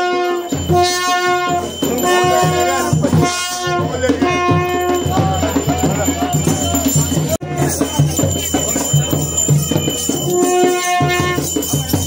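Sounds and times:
drums beating: 0.0 - 12.0
wind instrument melody: 0.0 - 12.0.

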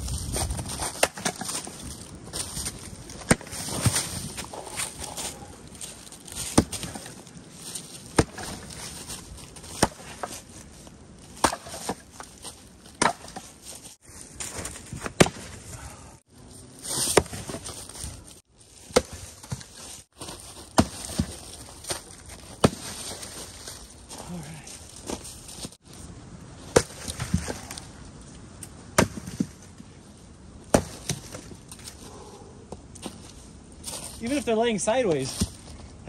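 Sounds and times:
axe chopping wood: 0.8 - 1.7, 3.2 - 4.9, 6.4 - 7.2, 8.1 - 8.8, 9.6 - 10.4, 11.4 - 12.1, 13.0 - 13.5, 15.0 - 15.6, 17.0 - 17.7, 18.9 - 19.7, 20.7 - 21.4, 22.6 - 23.0, 26.7 - 27.6, 28.9 - 29.6, 30.7 - 31.5.

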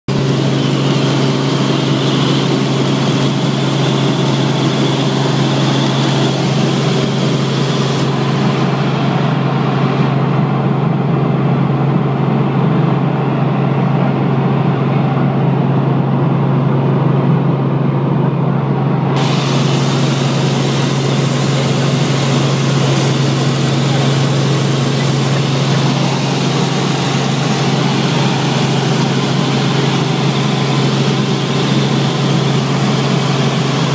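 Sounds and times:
helicopter engine and rotors: 0.1 - 33.9.

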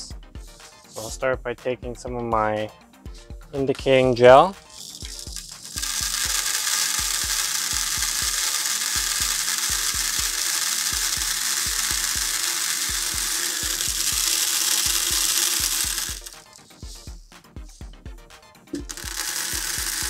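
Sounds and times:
background music with low beat: 0.0 - 20.0
beads pouring into plastic tub: 4.6 - 17.0, 18.8 - 20.0.

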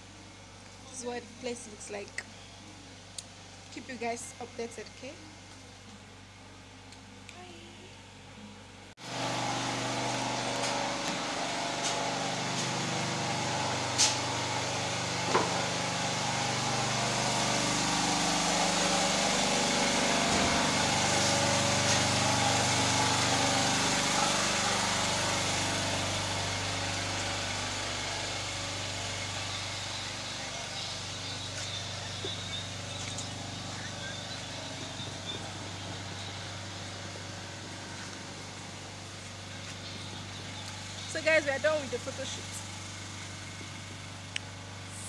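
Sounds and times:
small engine running: 9.0 - 45.0.

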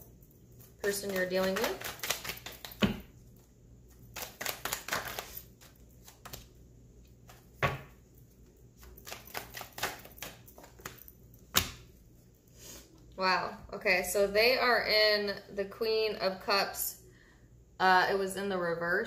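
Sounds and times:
cards shuffled by hand: 0.8 - 3.0, 3.9 - 6.5, 8.8 - 11.8.

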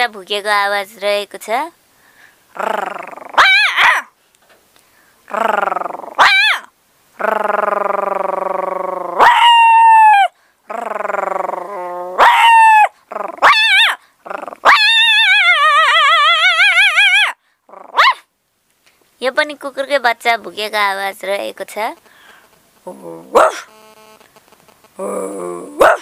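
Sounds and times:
woman imitating a puppy: 2.6 - 4.1, 5.3 - 18.2, 22.9 - 23.7, 25.0 - 26.0.

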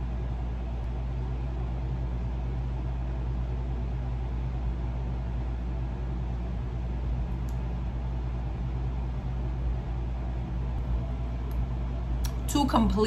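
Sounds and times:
air conditioner running: 0.0 - 13.0.

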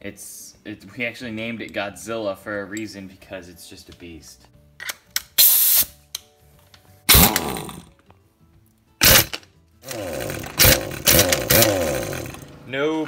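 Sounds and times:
air hose hiss: 5.4 - 6.0
pneumatic impact wrench bursts: 5.4 - 6.0, 7.1 - 7.8, 9.0 - 12.4.

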